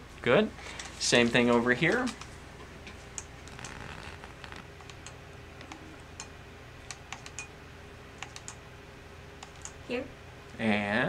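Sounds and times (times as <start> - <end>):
dial detent clicks: 4.4 - 7.5, 8.2 - 8.6, 9.4 - 9.8.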